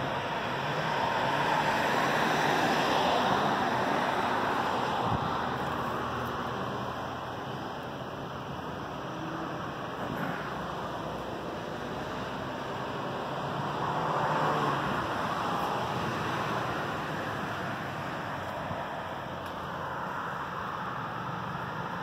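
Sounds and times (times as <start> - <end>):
city road traffic: 0.0 - 22.0
vehicle passing: 11.5 - 19.4.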